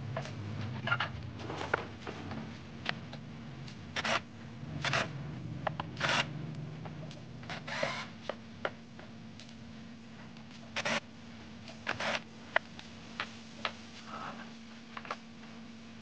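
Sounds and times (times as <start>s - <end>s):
cordless drill whirring: 6.0s - 6.3s, 7.5s - 8.1s.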